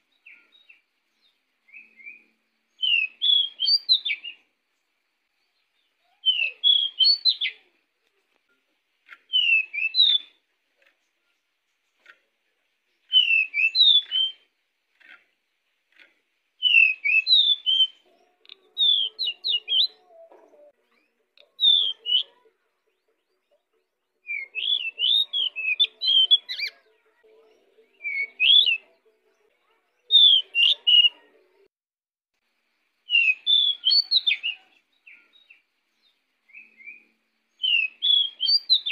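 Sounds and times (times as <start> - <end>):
bird singing whistled phrases: 1.6 - 4.4, 6.1 - 7.6, 9.3 - 10.4, 13.0 - 14.4, 16.6 - 18.0, 18.8 - 20.0, 21.5 - 22.4, 24.2 - 26.8, 28.0 - 28.8, 30.1 - 31.2, 33.1 - 35.6, 36.5 - 38.9.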